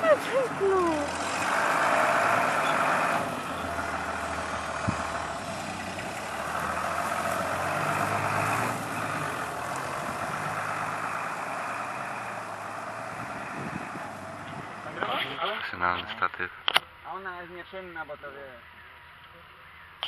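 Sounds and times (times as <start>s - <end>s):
tractor diesel engine running: 0.0s - 15.8s.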